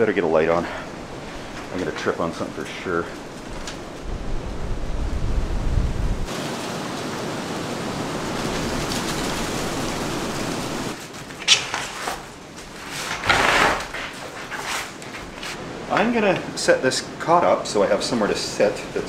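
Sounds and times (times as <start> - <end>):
stormy wind rushing: 0.0 - 11.0
bag rustling on floor: 10.9 - 15.6.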